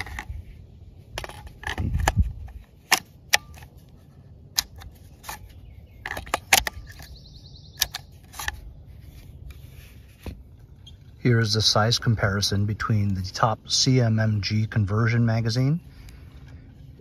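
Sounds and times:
plastic magazine clicking and tapping: 0.0s - 0.3s, 1.1s - 8.7s.

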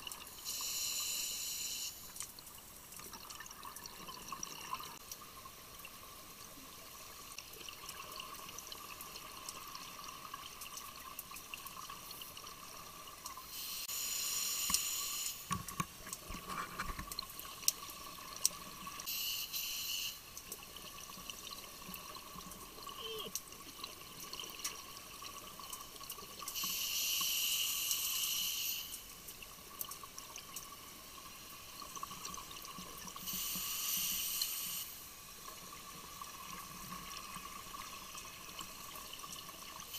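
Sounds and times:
faint steady tone: 0.0s - 15.5s, 17.3s - 39.9s.

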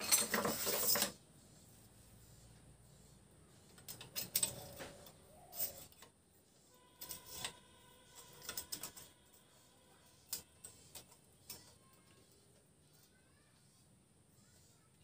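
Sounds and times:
steel bar clicking and sliding: 3.7s - 6.2s.

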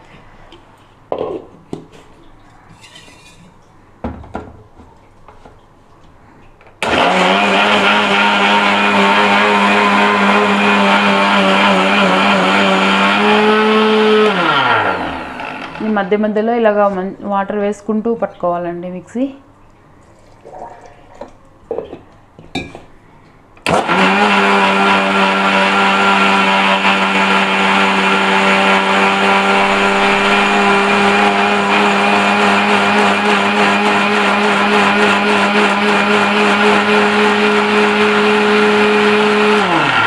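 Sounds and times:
mixer grinder motor humming: 6.8s - 16.0s, 23.7s - 40.0s.

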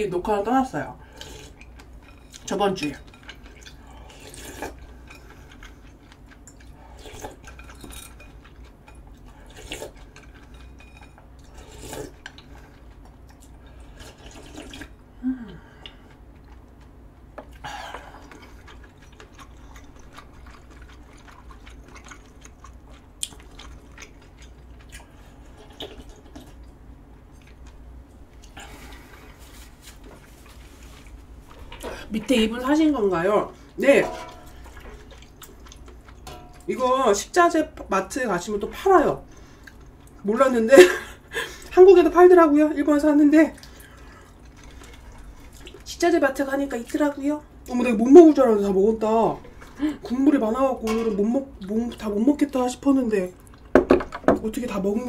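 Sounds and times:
low steady hum: 0.0s - 55.0s
slurping and chewing: 1.0s - 2.5s, 3.1s - 15.0s, 15.8s - 27.8s, 34.3s - 36.6s, 43.6s - 45.9s.

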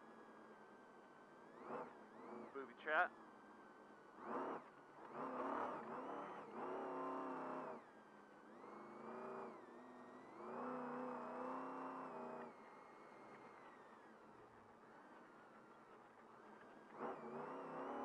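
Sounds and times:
race truck engine revving: 1.5s - 3.1s, 4.2s - 7.9s, 8.5s - 13.9s, 16.5s - 18.0s.

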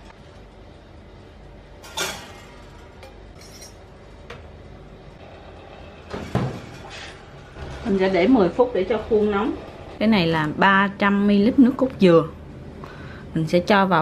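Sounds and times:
faint steady hum: 8.6s - 14.0s.

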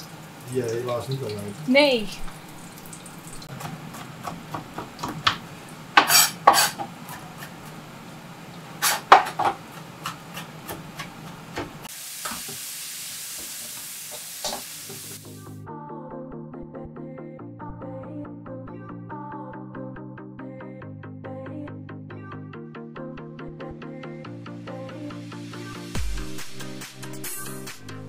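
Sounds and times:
hot pan sizzling: 0.0s - 15.4s
knife chopping on cutting board: 3.5s - 5.4s, 6.0s - 7.6s, 8.8s - 11.9s.

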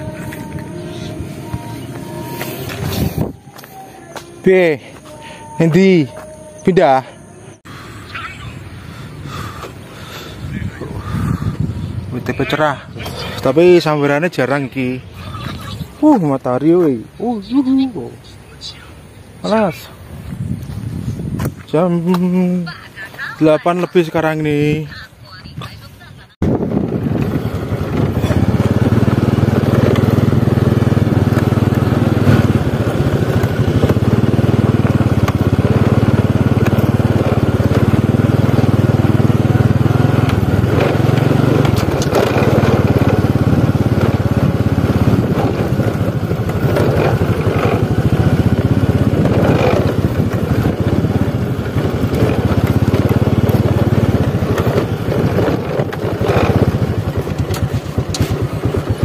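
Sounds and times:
scooter engine droning: 0.0s - 18.1s, 26.0s - 59.0s
tyres crunching over dirt: 26.7s - 59.0s.

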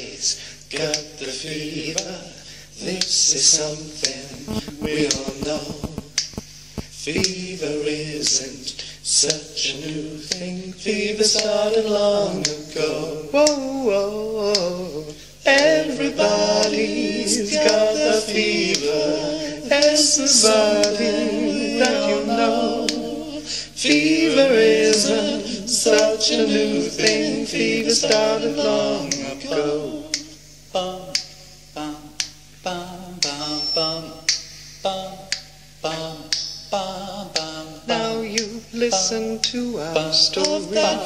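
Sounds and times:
male vocal group singing: 0.0s - 6.2s, 6.8s - 41.0s
sharp clicks keeping time: 4.0s - 7.4s, 9.2s - 10.5s, 11.3s - 11.7s, 18.6s - 23.1s, 37.3s - 40.8s.

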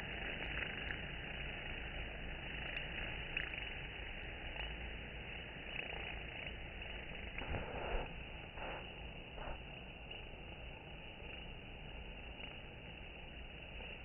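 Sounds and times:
faint ticks: 0.0s - 14.0s
honey bees droning: 0.0s - 14.0s.

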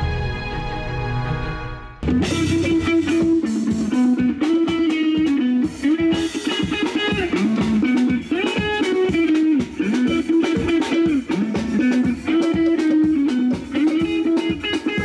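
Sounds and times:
bass line: 0.0s - 4.9s
plucked guitar melody: 2.0s - 15.0s.

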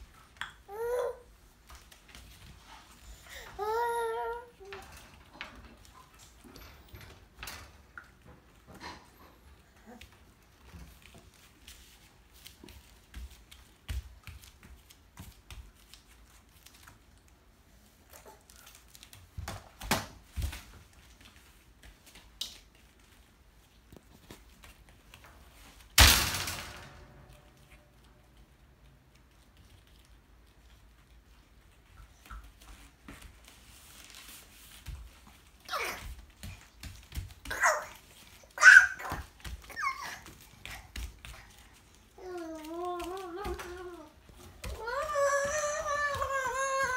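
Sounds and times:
footsteps on foam mats: 9.8s - 17.1s, 31.6s - 46.9s
high-pitched cry: 38.6s - 40.3s.

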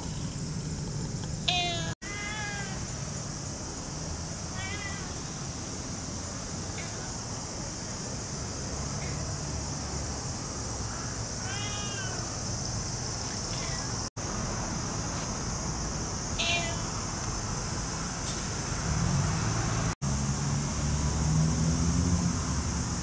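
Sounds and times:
high-pitched hiss: 0.0s - 23.0s
cat meowing: 1.5s - 2.9s, 4.5s - 5.2s, 11.4s - 12.4s, 13.5s - 14.1s, 16.4s - 16.9s.

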